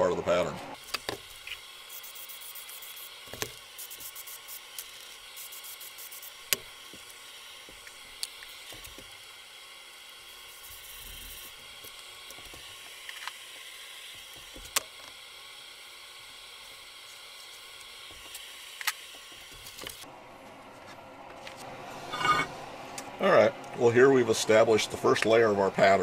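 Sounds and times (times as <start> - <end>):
aerosol spray hissing: 0.8 - 20.0.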